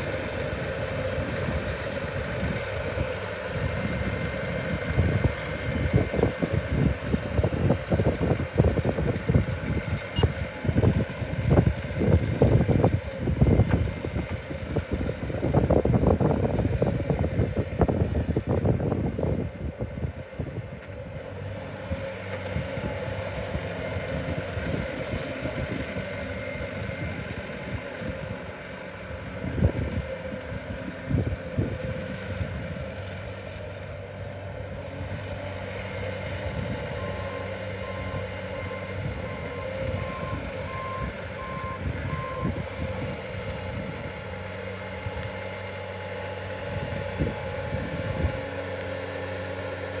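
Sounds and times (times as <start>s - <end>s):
diesel engine running: 0.0s - 50.0s
wind buffeting microphone: 0.5s - 20.8s, 46.6s - 48.5s.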